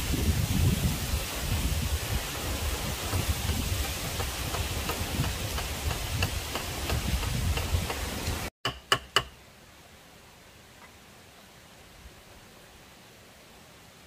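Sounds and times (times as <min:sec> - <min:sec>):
wind rumbling on microphone: 0:00.0 - 0:08.5
low steady hiss: 0:00.0 - 0:14.0.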